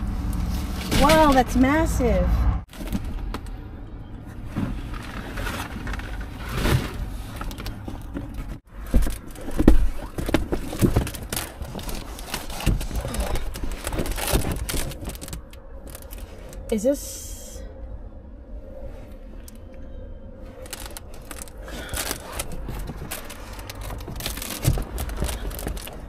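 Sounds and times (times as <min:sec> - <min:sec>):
window shades rustling and scraping: 0:04.3 - 0:16.7, 0:20.4 - 0:26.0.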